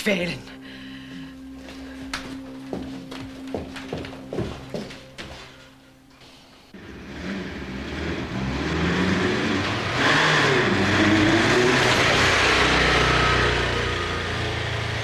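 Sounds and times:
motorcycle engine approaching: 6.8 - 15.0.

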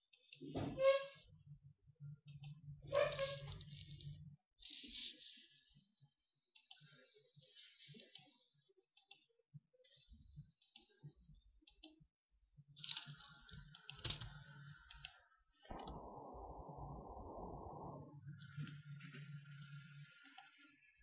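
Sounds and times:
computer mouse clicks: 6.5 - 7.0, 7.9 - 9.3, 9.9 - 12.0, 12.8 - 16.0
steady low hum: 15.7 - 20.4.

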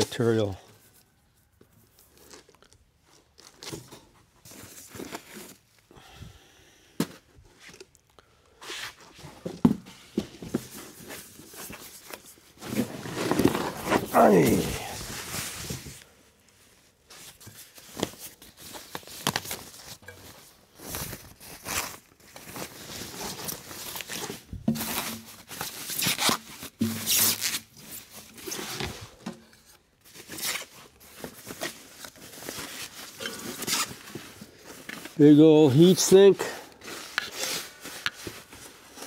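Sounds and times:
plastic bag rustling and crinkling: 10.4 - 39.0.

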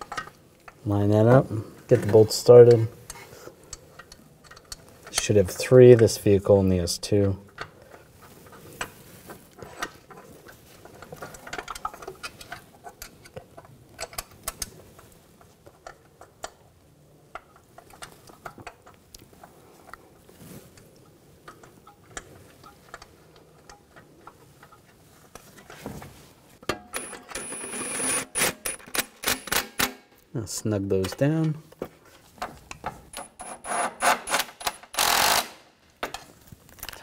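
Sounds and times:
socket ratchet clicking rapidly: 33.7 - 35.6.

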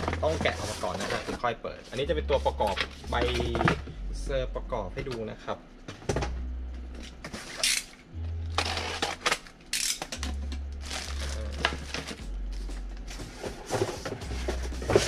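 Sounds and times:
cardboard and plastic bag rustling: 0.0 - 3.8, 10.2 - 15.0
background music with bass line: 0.0 - 15.0.

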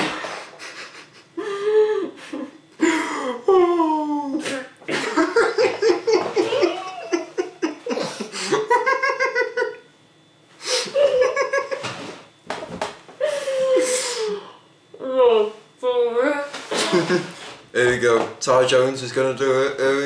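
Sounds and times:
people laughing with mouths full: 0.3 - 3.7, 4.9 - 9.8, 10.8 - 12.0, 16.8 - 17.4.

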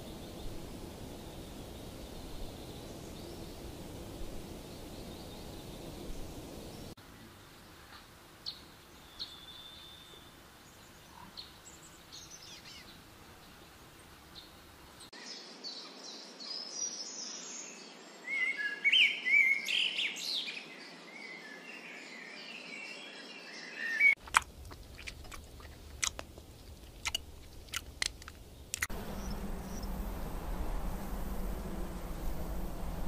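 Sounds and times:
birds chirping: 0.0 - 15.1, 23.3 - 33.0
sharp clicks: 24.2 - 29.0
low steady hum: 24.2 - 33.0.

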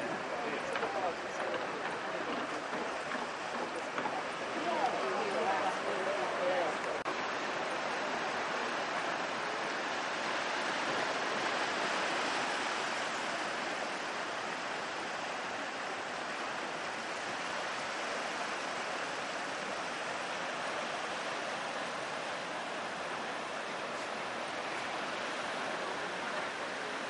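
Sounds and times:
ocean surf breaking on rocks: 0.0 - 27.0.

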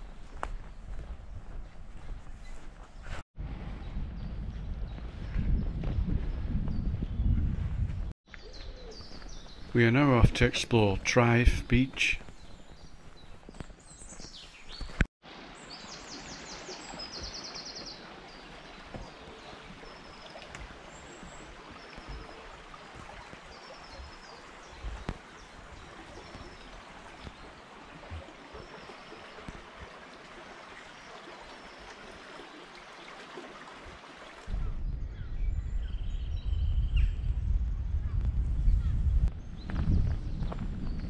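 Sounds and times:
birds singing and chirping: 8.3 - 15.0
stream flowing: 15.2 - 34.5.

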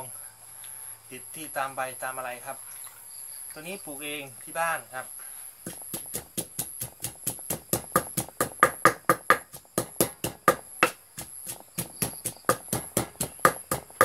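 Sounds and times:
pestle pounding in a mortar: 5.6 - 14.0.

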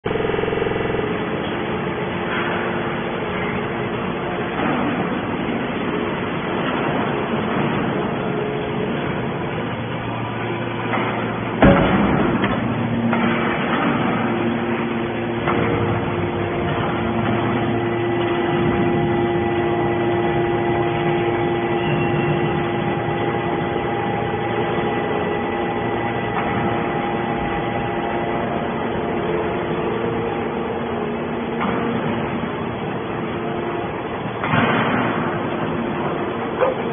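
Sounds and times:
hydraulic machine hum: 0.0 - 36.9
steady machine whine: 0.0 - 36.9
loud metal bang: 10.0 - 32.8, 34.3 - 36.5.

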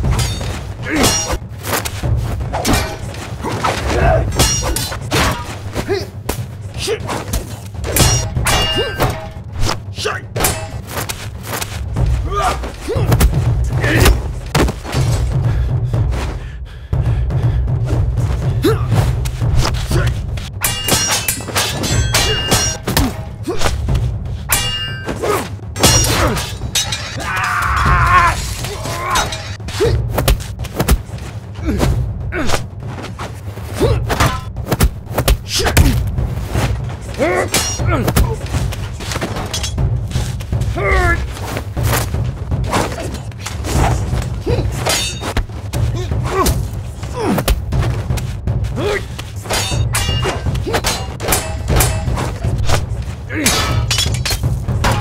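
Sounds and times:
music: 0.0 - 55.0
fighters grunting: 0.8 - 1.5, 2.8 - 7.3, 12.1 - 14.4, 18.5 - 19.1, 25.1 - 30.1, 31.6 - 32.7, 37.0 - 38.7, 40.6 - 41.4, 42.6 - 47.7, 48.7 - 52.6, 53.2 - 54.0
sword and shield hits: 2.6 - 3.1, 3.8 - 5.6, 7.3 - 9.8, 10.4 - 11.2, 20.6 - 23.8, 24.5 - 27.6, 44.8 - 45.5, 48.8 - 55.0
punch and kick impacts: 7.2 - 15.4, 29.8 - 32.7, 33.8 - 37.0.

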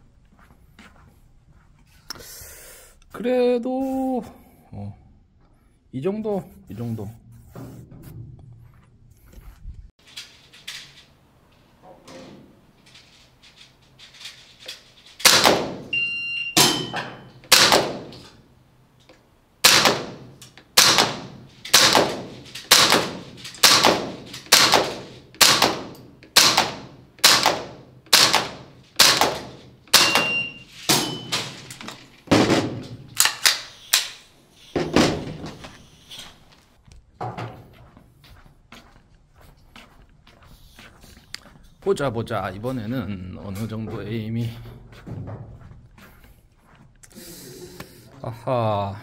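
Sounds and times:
airsoft rifle shots with bolt clack: 15.2 - 15.9, 16.6 - 18.4, 19.6 - 31.6, 32.3 - 34.2.

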